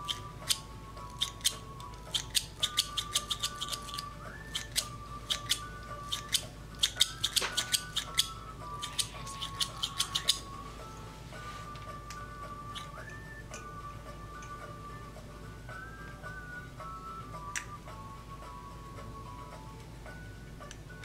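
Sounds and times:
soft background music: 0:00.0 - 0:21.0.

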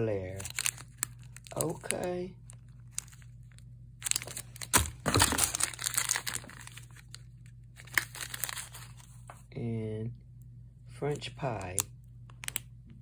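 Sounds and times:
plastic wrappers crinkling: 0:00.2 - 0:09.3, 0:11.6 - 0:12.6.

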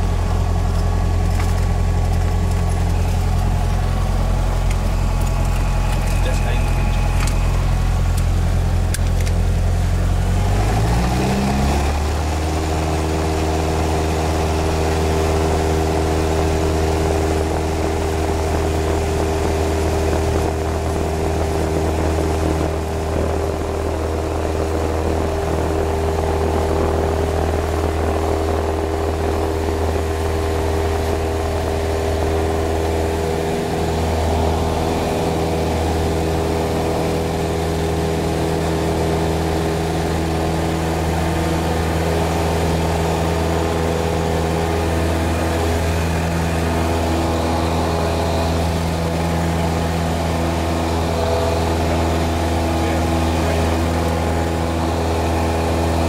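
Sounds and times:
propeller plane engine: 0:00.0 - 0:56.0.

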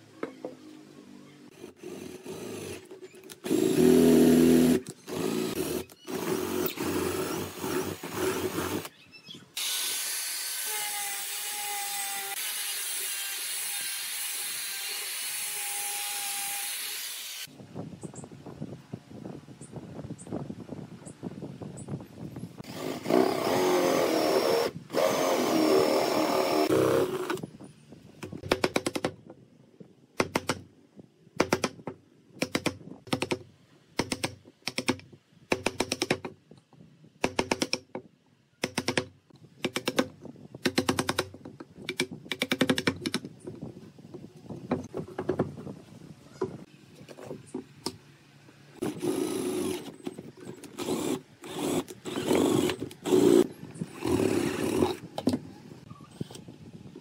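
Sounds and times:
cordless drill boring into wood: 0:09.6 - 0:17.5, 0:22.6 - 0:27.4, 0:48.8 - 0:50.0, 0:50.7 - 0:55.0.

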